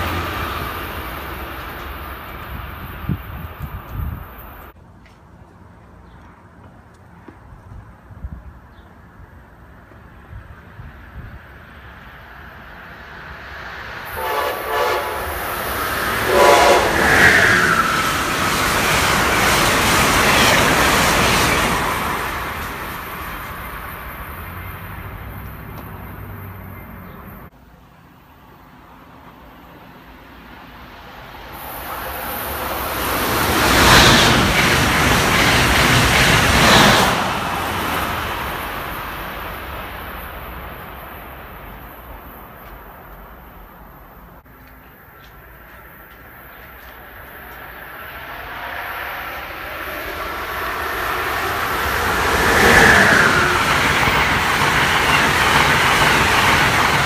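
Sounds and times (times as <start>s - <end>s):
train passing at speed: 0.0s - 4.8s, 7.5s - 57.0s
electric train horn: 14.1s - 17.7s.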